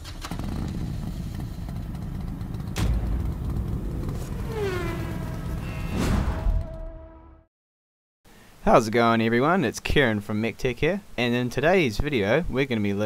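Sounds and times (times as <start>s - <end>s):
low engine rumble: 0.0s - 5.9s
falling whine: 2.5s - 7.3s
sharp hit: 2.7s - 7.1s.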